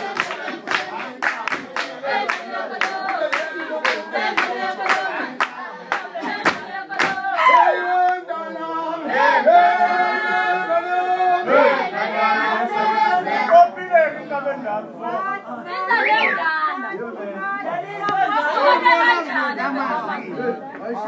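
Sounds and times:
rhythmic claps or stamps: 0.0s - 7.4s
group singing: 0.0s - 21.0s.

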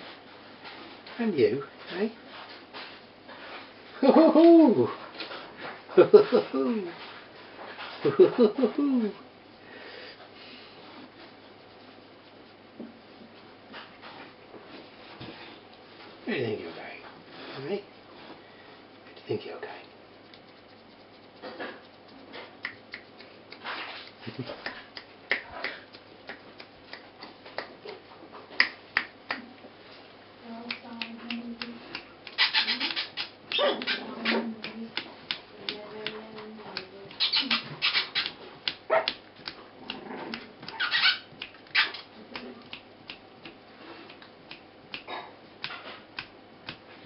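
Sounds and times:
puppies yipping and squealing: 32.4s - 34.4s, 37.2s - 39.1s, 40.7s - 42.1s
puppies growling: 32.8s - 34.7s, 39.7s - 40.9s.

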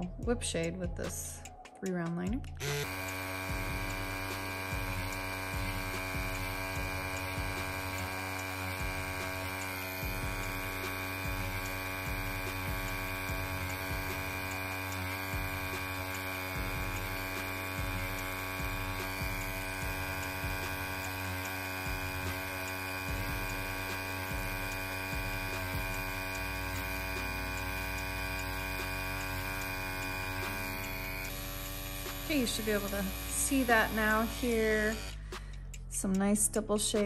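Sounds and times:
tattoo pen motor buzzing: 2.4s - 36.2s.

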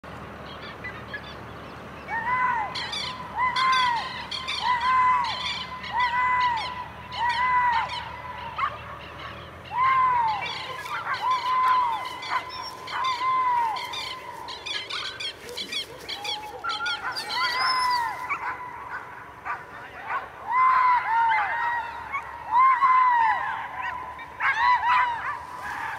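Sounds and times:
animal calls rising and falling: 9.3s - 19.6s
bird chirps: 10.3s - 18.5s.

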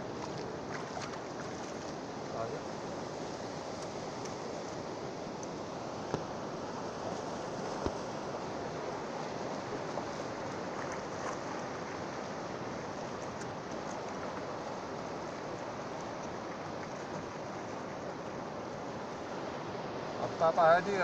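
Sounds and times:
sea surf washing on shore: 0.0s - 21.0s.

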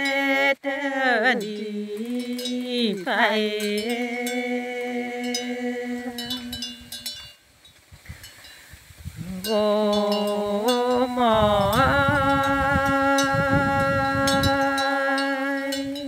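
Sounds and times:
person chanting unaccompanied: 0.0s - 7.2s, 9.2s - 16.0s
quiet breath: 8.0s - 9.2s.

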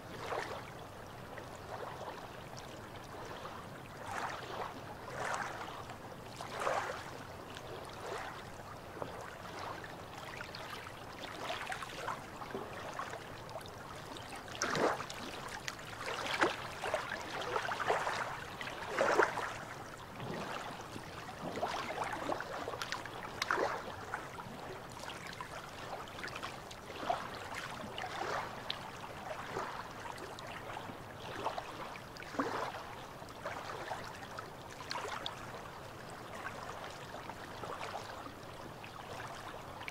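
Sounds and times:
water lapping against rocks: 3.1s - 10.6s, 11.2s - 34.1s.

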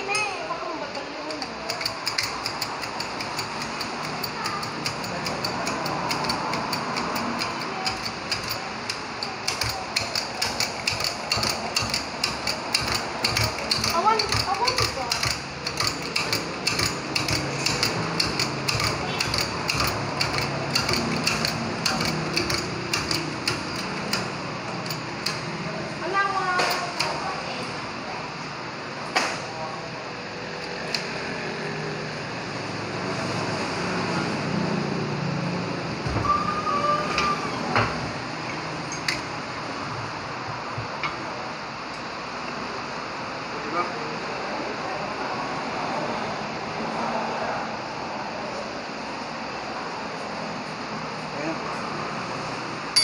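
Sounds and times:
workshop background noise: 0.0s - 53.0s
metal clinks and knocks: 1.3s - 25.4s
metal scraping squeak: 36.2s - 37.8s.

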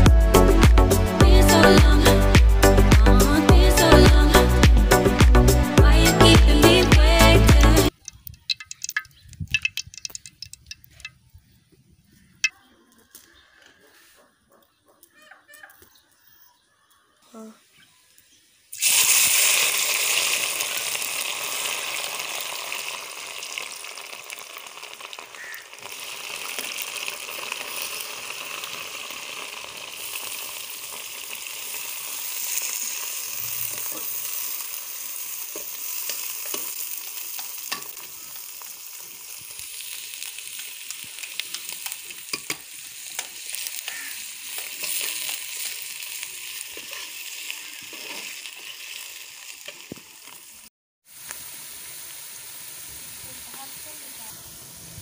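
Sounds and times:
vegetables sizzling in hot oil: 18.3s - 55.0s.

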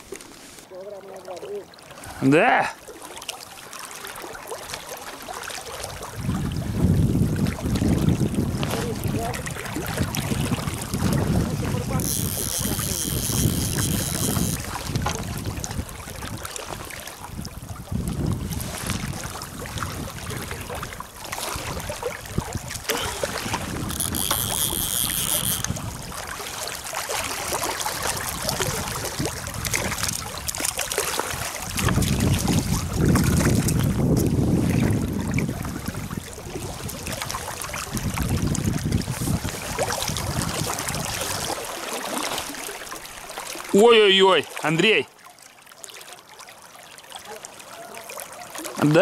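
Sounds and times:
wind buffeting microphone: 5.8s - 41.6s
short high-pitched buzzes: 12.0s - 14.6s, 23.9s - 25.8s
river water rushing: 18.7s - 33.4s, 39.6s - 49.0s.

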